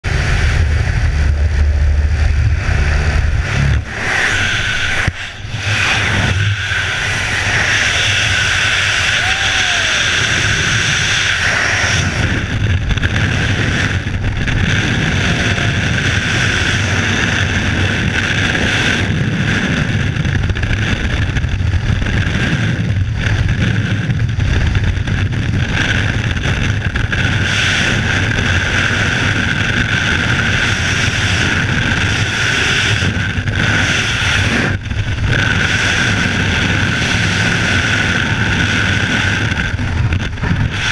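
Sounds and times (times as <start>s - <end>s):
plane engine humming: 0.0s - 18.5s, 30.9s - 40.9s
wind rushing: 0.0s - 28.2s, 28.8s - 40.9s.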